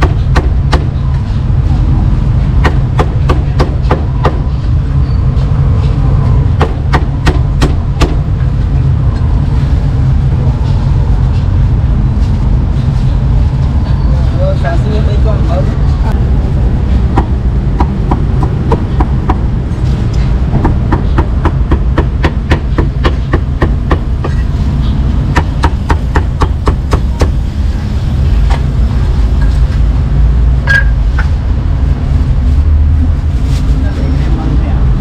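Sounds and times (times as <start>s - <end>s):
low rumble: 3.9s - 22.2s.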